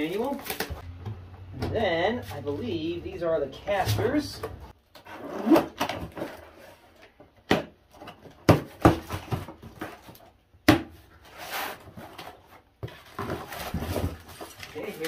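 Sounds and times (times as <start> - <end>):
rustling: 11.2 - 15.0.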